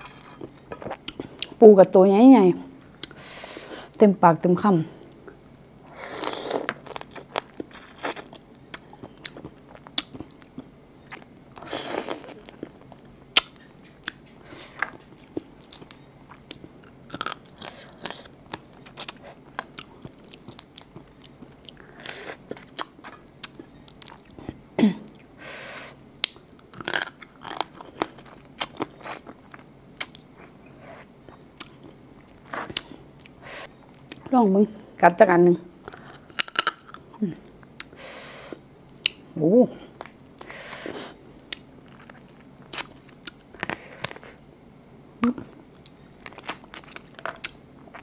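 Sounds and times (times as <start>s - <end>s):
crab shell cracking and crunching: 6.2s - 10.6s, 14.8s - 24.3s, 26.2s - 30.3s, 35.9s - 37.9s, 46.2s - 47.6s.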